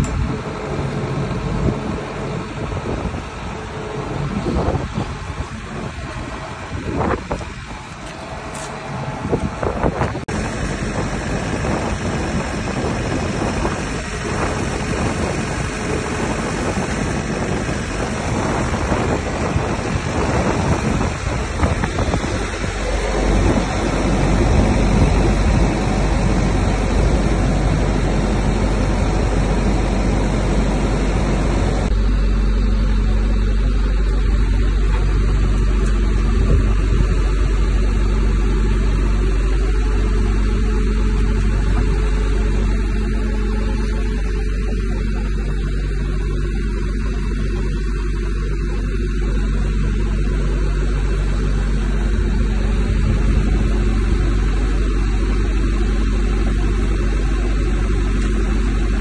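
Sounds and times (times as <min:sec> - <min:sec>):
loud rushing noise: 0:00.0 - 0:32.5
diesel engine humming: 0:00.0 - 0:59.0.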